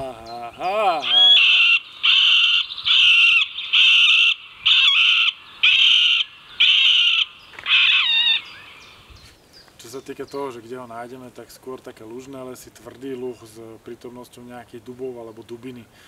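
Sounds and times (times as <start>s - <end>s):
woodpecker laughing calls: 0.0s - 9.2s.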